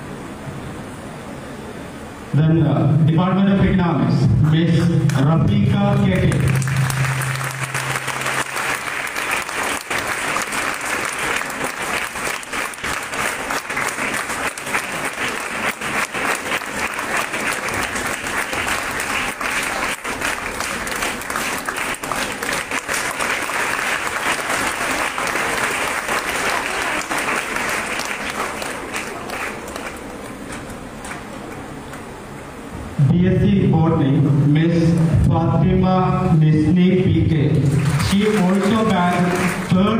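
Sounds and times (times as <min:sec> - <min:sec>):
audience applauding: 0:05.9 - 0:32.1, 0:37.6 - 0:39.9.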